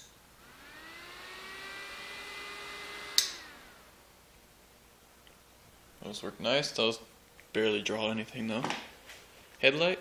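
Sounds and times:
small electric fans whirring: 0:00.0 - 0:07.8
sharp click: 0:03.2 - 0:03.4.

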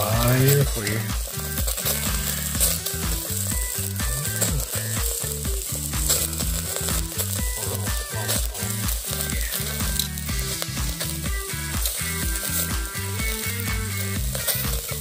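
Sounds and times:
butter sizzling and crackling: 0:00.0 - 0:15.0
low pitched tones: 0:00.0 - 0:15.0.

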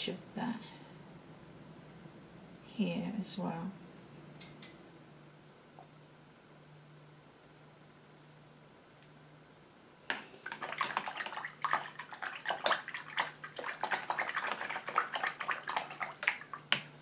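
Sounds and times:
paintbrush swishing in water bowl: 0:10.2 - 0:16.7.

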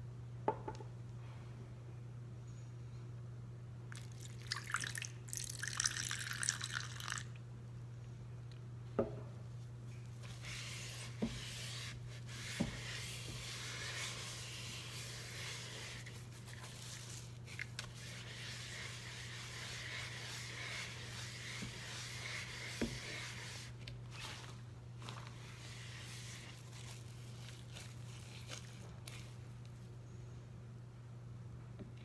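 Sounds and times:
sponge squishing and scraping: 0:10.1 - 0:29.5.

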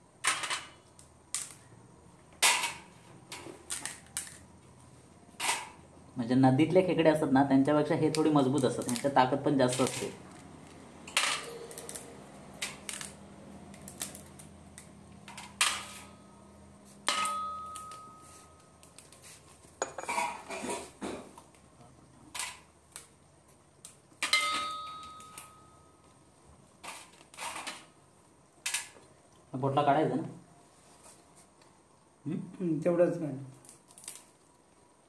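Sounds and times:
crab shells cracking: 0:12.6 - 0:14.9, 0:33.6 - 0:34.7.

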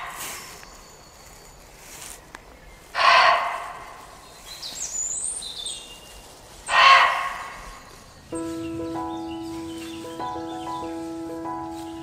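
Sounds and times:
deer barking: 0:03.0 - 0:03.8, 0:06.7 - 0:07.7
small bird chirping: 0:04.2 - 0:12.0.

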